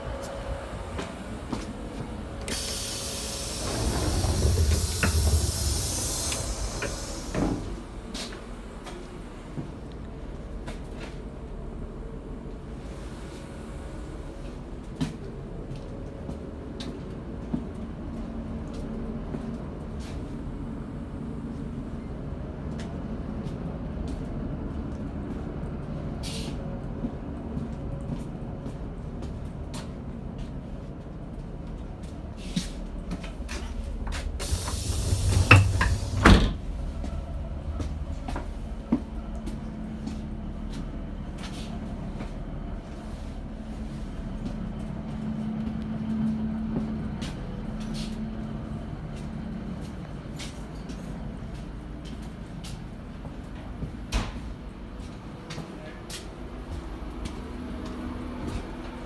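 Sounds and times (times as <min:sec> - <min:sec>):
train interior rumble and drone: 0:00.0 - 0:59.0
compressed air hissing: 0:02.5 - 0:08.0, 0:34.2 - 0:36.7
low rumble: 0:31.3 - 0:50.3.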